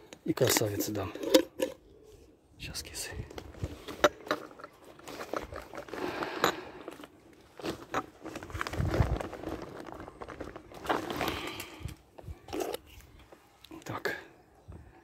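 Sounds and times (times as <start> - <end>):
cats crunching dry kibble: 3.5 - 13.1.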